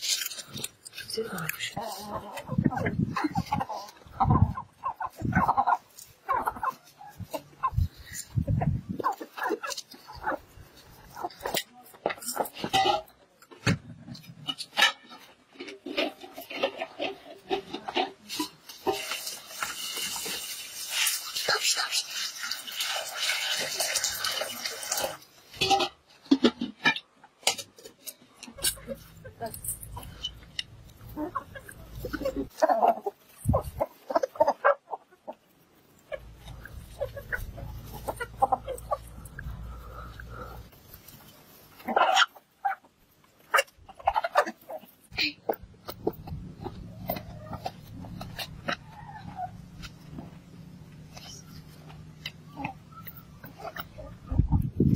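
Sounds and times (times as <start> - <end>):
chickens clucking: 0.0 - 54.9
water pouring into pot: 19.2 - 25.3.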